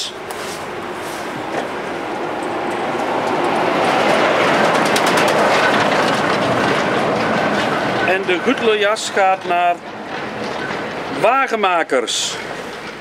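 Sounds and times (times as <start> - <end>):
trailer clattering: 0.0 - 13.0
semi-trailer truck driving past: 0.1 - 11.2.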